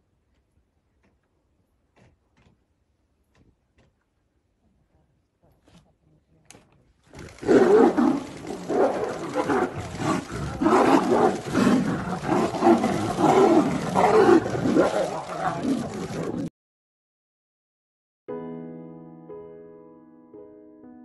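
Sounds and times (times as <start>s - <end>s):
tigers growling and roaring: 7.1s - 16.5s.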